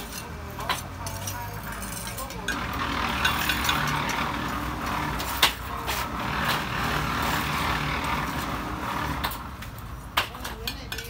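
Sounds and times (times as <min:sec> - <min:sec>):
engine running: 0:02.4 - 0:10.1.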